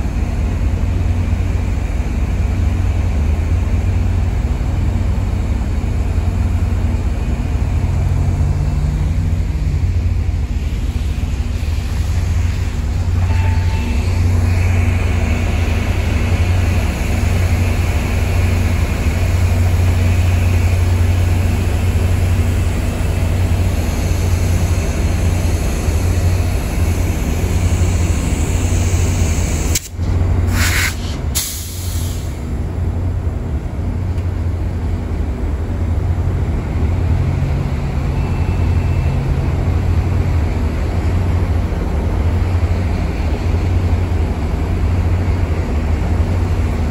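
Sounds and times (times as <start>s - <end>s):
diesel locomotive rumbling: 0.0s - 46.9s
air brake hisses: 30.5s - 32.4s.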